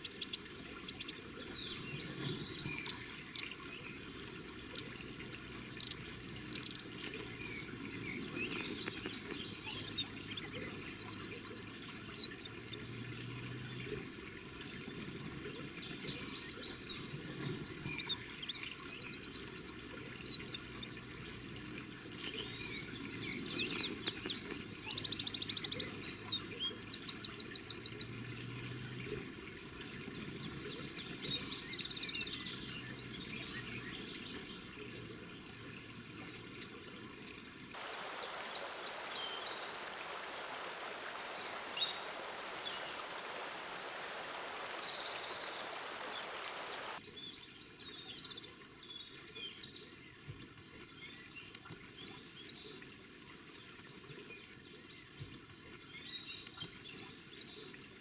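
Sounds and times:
river water rushing: 0.0s - 33.9s, 37.1s - 47.0s
birds calling: 0.0s - 47.1s.

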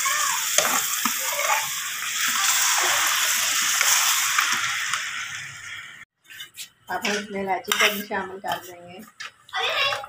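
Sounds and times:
water sizzling in a hot pot: 0.0s - 6.1s.

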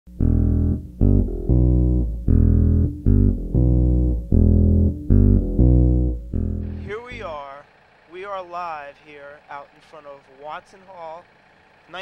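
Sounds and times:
low-pitched music riff: 0.1s - 7.6s.

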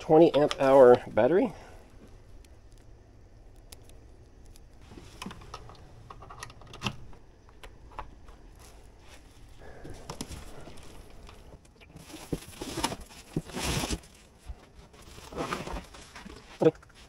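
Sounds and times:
cardboard box and foam rustling: 12.0s - 17.0s.

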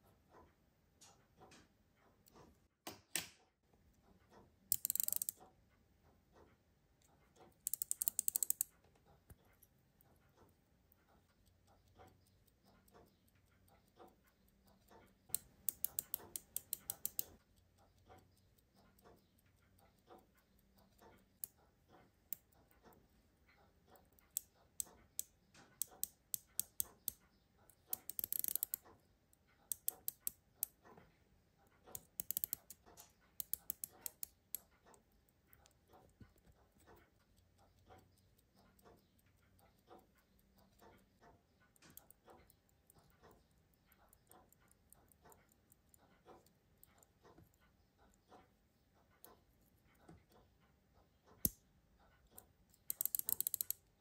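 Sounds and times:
watch winding clicks: 4.7s - 5.5s, 7.0s - 30.9s, 31.6s - 47.8s, 52.3s - 54.0s.

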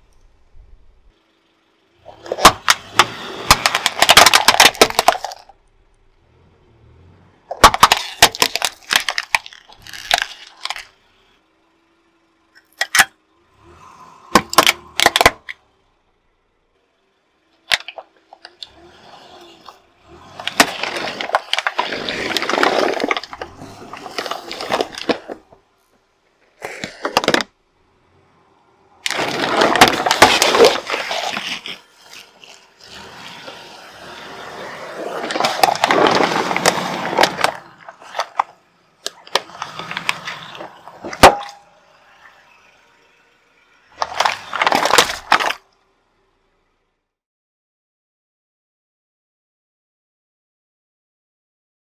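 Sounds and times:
tyre crushing plastic bottles: 2.1s - 5.5s, 7.5s - 11.0s, 14.4s - 15.6s, 17.6s - 18.7s, 19.4s - 25.6s, 26.6s - 27.5s, 29.0s - 41.6s, 44.0s - 45.6s.

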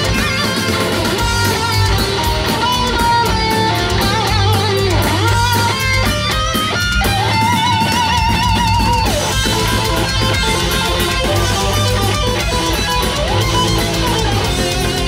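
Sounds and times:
heavy metal band playing: 0.0s - 15.0s
lead electric guitar: 0.0s - 15.0s.

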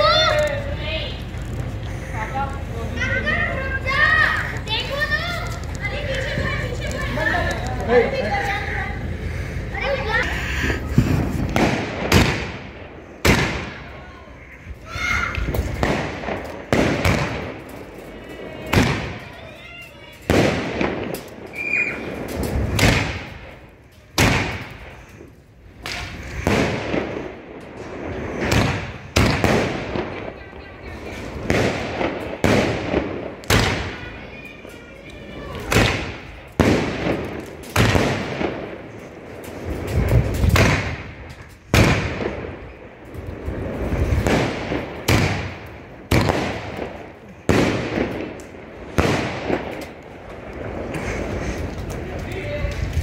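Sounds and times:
fireworks bangs: 0.0s - 53.0s.

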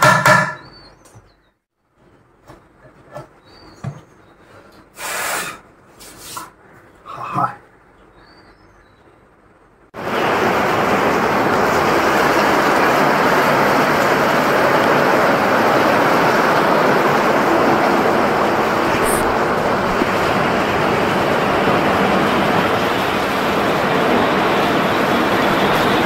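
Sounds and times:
heavy rain pouring: 10.0s - 26.0s.

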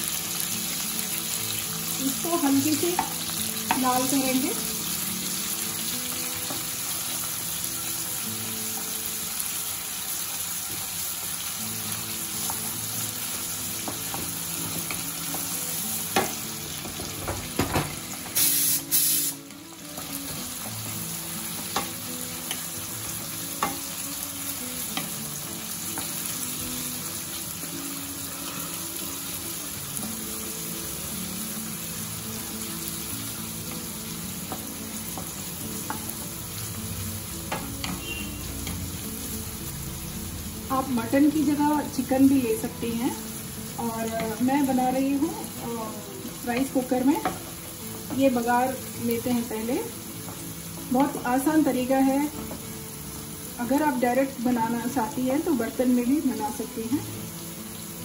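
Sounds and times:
onions sizzling in hot oil: 0.0s - 58.0s
wooden spatula knocking on pan: 16.1s - 18.0s.

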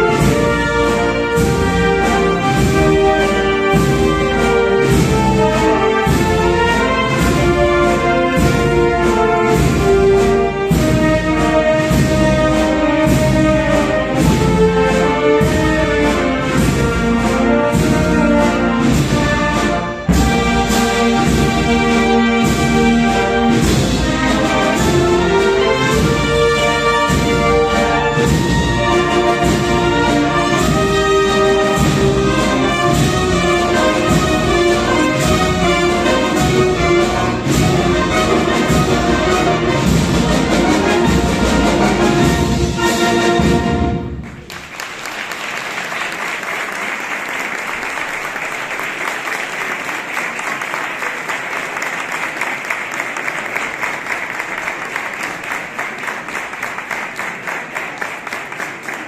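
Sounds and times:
wind band playing a march: 0.0s - 59.0s
audience applauding: 44.2s - 59.0s.

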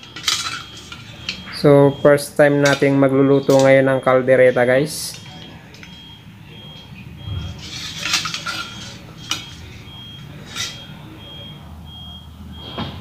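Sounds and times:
metal ladle clinking against pot: 0.0s - 1.5s, 2.5s - 3.8s, 7.5s - 9.7s, 10.4s - 10.9s.

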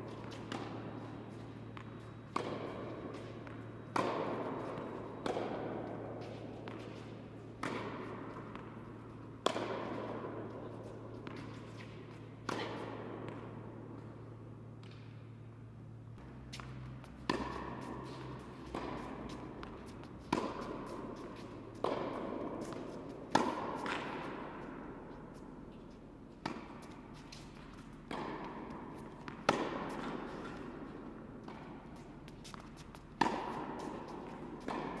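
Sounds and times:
tennis ball hits echoing: 1.7s - 6.9s, 7.5s - 10.5s, 16.2s - 24.4s, 28.1s - 30.6s, 34.6s - 35.0s.

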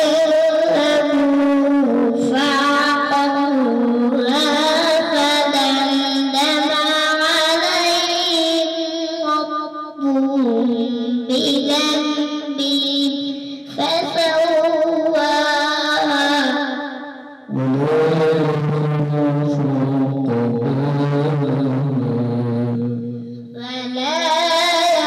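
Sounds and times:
boy reciting melodically into microphone: 0.0s - 25.0s.

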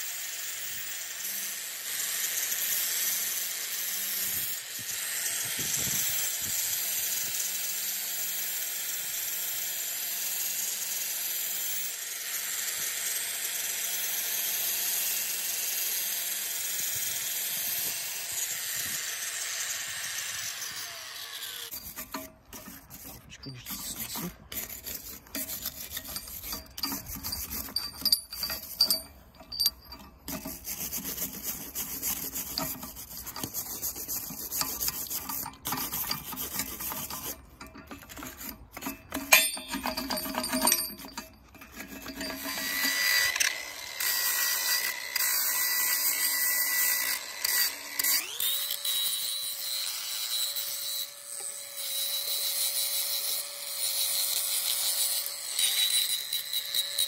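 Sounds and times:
steady power tool noise: 0.0s - 57.0s
angle grinder whining: 11.0s - 33.5s, 37.9s - 57.0s
wire brush scrubbing steel chain: 20.6s - 57.0s.

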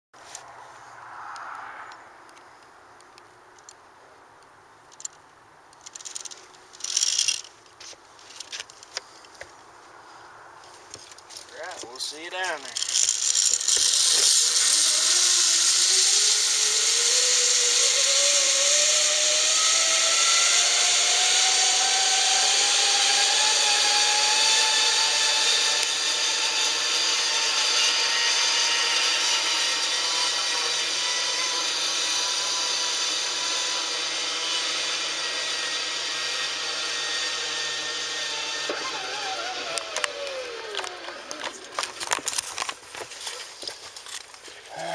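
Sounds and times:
zip line pulleys whirring: 5.8s - 7.6s, 11.0s - 44.9s.

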